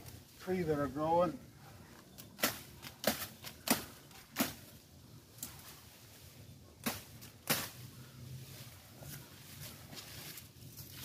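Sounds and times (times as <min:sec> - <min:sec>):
machete chopping wood: 0:02.4 - 0:04.6, 0:06.8 - 0:07.8.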